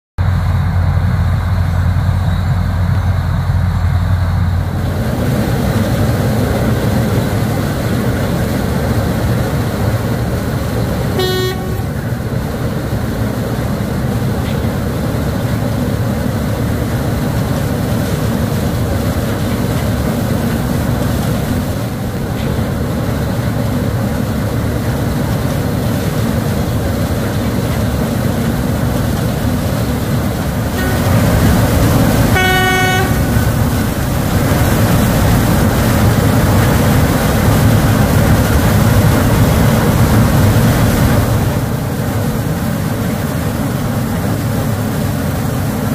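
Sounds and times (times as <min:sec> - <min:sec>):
short horn toot: 0:11.2 - 0:12.0, 0:30.8 - 0:31.3, 0:32.3 - 0:33.4.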